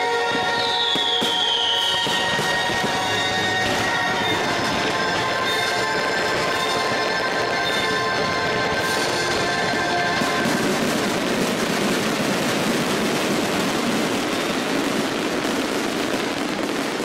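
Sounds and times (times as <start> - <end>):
fireworks crackling: 0.0 - 17.0.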